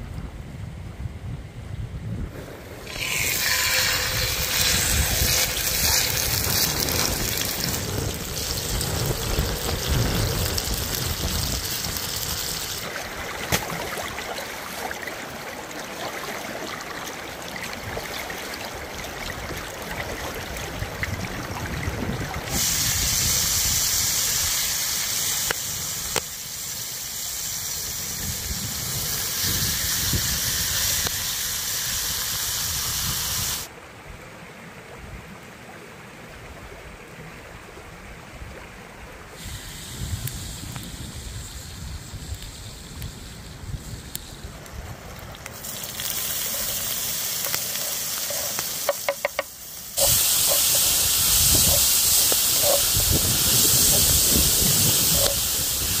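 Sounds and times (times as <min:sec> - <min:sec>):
running water: 0:02.4 - 0:32.8, 0:34.7 - 0:56.0
chicken sizzling in hot oil: 0:02.8 - 0:12.9, 0:22.5 - 0:33.7, 0:45.6 - 0:56.0.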